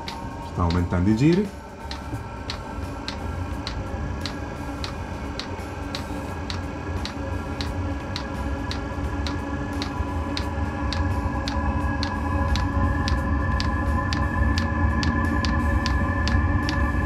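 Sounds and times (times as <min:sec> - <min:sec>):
fuel pump ticking: 0:00.0 - 0:11.0
blower fan humming: 0:00.0 - 0:17.0.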